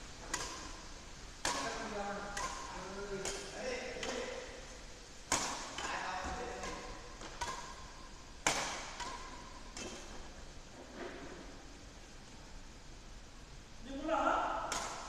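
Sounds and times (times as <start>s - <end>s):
rackets hitting shuttlecock: 0.2s - 11.6s, 14.6s - 15.0s.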